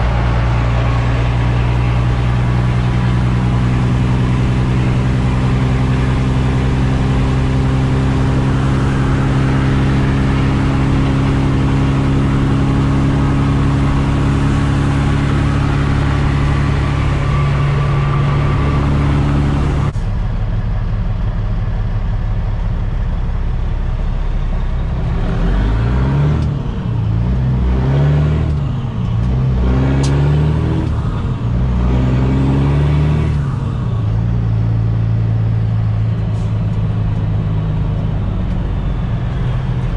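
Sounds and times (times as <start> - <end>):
diesel truck engine running: 0.0 - 39.9.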